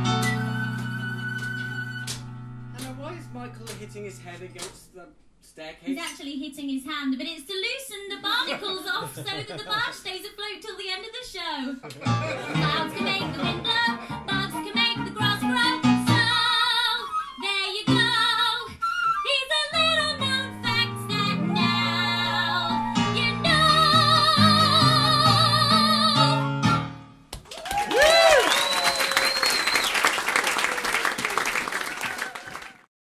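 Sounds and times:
whistle from audience: 0:00.0 - 0:02.2, 0:18.8 - 0:19.4, 0:27.9 - 0:30.9
piano accompaniment: 0:00.0 - 0:04.8, 0:12.1 - 0:16.6, 0:19.7 - 0:27.3
singers singing: 0:12.4 - 0:14.8
audience applauding: 0:27.4 - 0:32.9
audience cheer: 0:27.5 - 0:32.9.

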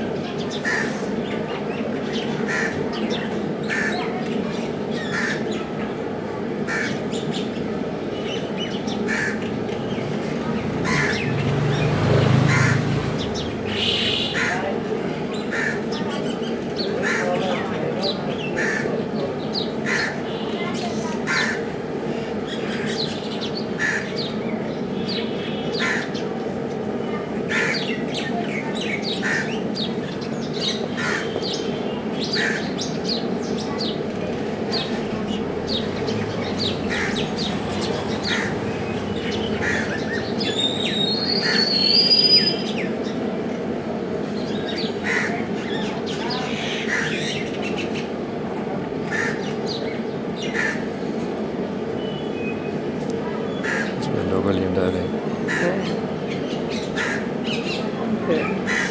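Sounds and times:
birds calling: 0:00.0 - 0:58.9
steady low hum: 0:29.6 - 0:41.1.

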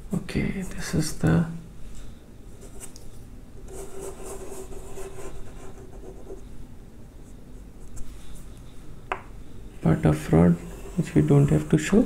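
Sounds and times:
chalk scratching on chalkboard: 0:03.7 - 0:06.4, 0:10.6 - 0:11.8.

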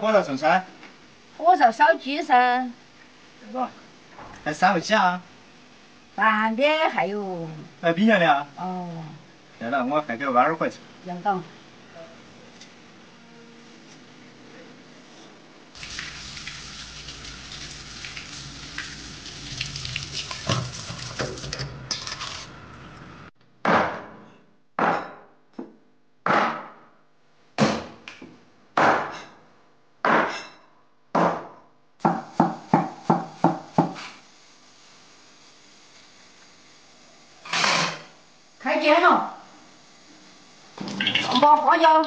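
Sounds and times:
cleaver chopping on wooden board: 0:23.6 - 0:24.1, 0:24.8 - 0:25.2, 0:26.2 - 0:26.8, 0:27.6 - 0:28.0, 0:28.8 - 0:29.2, 0:30.0 - 0:30.4, 0:31.2 - 0:34.0.

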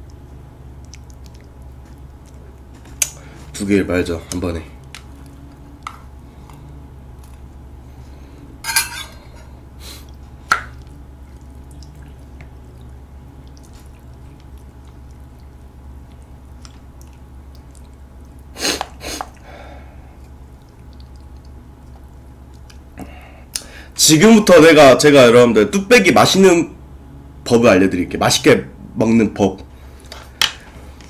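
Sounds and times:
wet sloppy stirring: 0:00.0 - 0:08.0, 0:08.6 - 0:23.0
low steady hum: 0:00.0 - 0:31.0
spoon scraping metal bowl: 0:08.6 - 0:09.2.

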